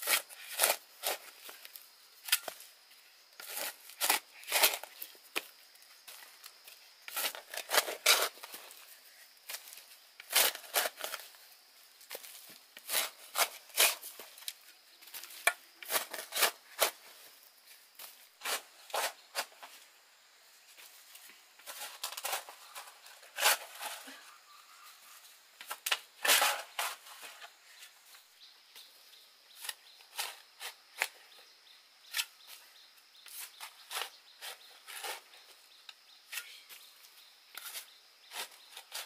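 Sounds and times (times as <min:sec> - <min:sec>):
crackling and rustling: 0:03.4 - 0:20.0, 0:20.6 - 0:24.3, 0:25.0 - 0:28.9.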